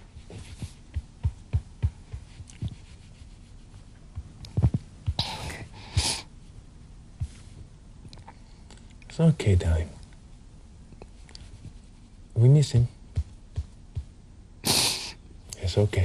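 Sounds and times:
soft thumps and rustles: 0.0s - 3.3s, 4.0s - 5.4s, 7.2s - 7.7s
person sniffling and sobbing: 5.2s - 6.3s, 14.6s - 15.2s.

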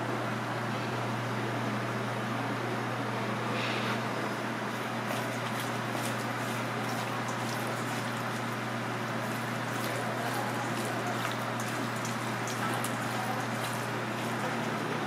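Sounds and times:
steady machine hum: 0.0s - 15.0s
hand squishing wet food in bowl: 4.7s - 14.9s.

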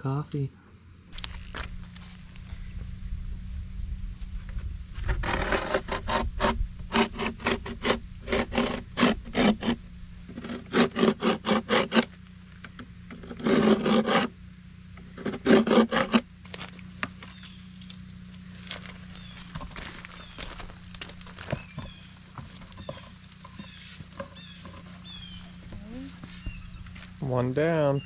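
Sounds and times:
utility knife scoring board: 5.0s - 12.1s, 13.1s - 14.3s, 15.2s - 16.2s.

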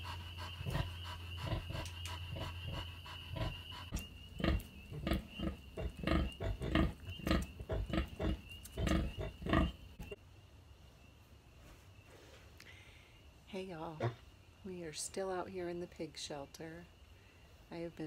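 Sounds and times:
sow grunting: 0.0s - 9.8s.

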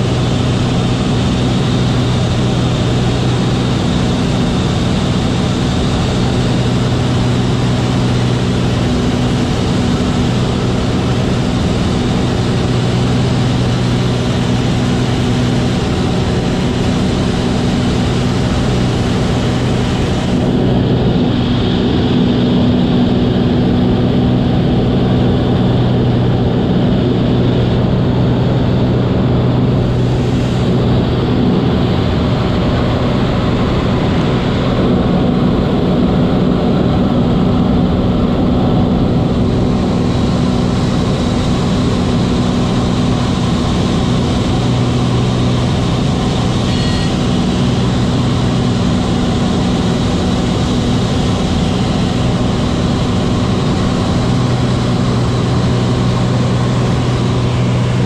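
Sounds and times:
plane engine and propeller drone: 0.0s - 58.0s
rushing air: 28.3s - 34.6s.

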